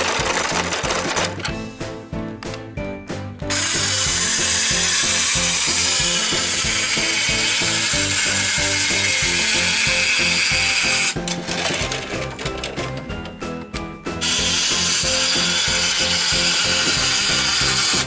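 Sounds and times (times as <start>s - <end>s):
toy motorised lift whirring: 0.0s - 1.5s, 3.5s - 13.0s, 14.2s - 18.0s.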